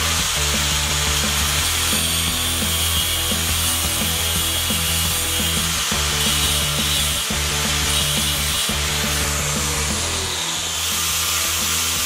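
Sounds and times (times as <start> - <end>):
angle grinder on steel: 0.0 - 12.0
background music with a beat: 0.0 - 12.0.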